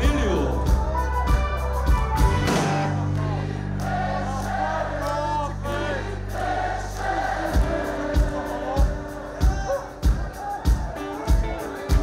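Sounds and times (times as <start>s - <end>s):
live rock band: 0.0s - 4.9s, 5.6s - 12.0s
drums: 0.0s - 5.0s, 5.7s - 12.0s
crowd singing along: 2.6s - 11.0s.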